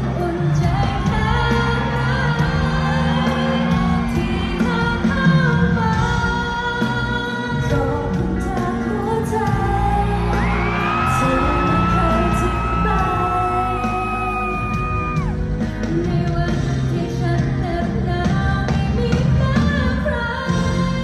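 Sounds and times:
live band with electric guitars: 0.0 - 21.0
woman singing pop song: 0.0 - 21.0.

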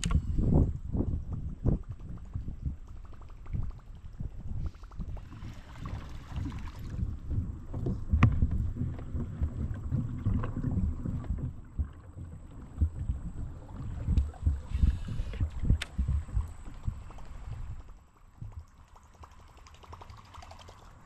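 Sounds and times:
sharp click: 0.0 - 0.2.

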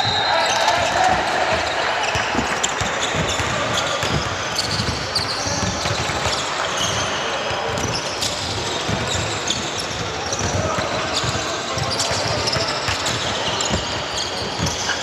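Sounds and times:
basketball bouncing on court: 0.0 - 15.0
shoe squeaks: 0.0 - 15.0.

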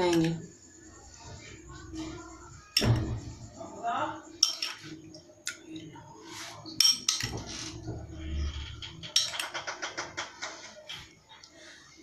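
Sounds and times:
spoon clinking on glass bowl: 4.4 - 4.8.

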